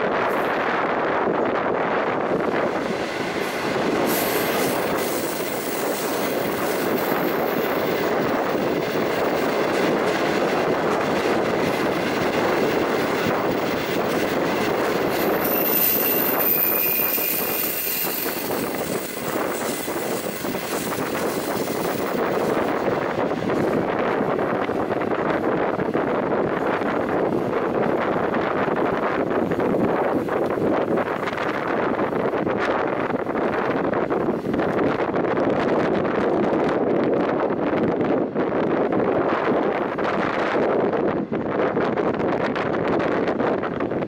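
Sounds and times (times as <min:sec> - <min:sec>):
train wheels roaring on rail: 0:00.0 - 0:44.0
high metallic squeal: 0:15.0 - 0:20.9.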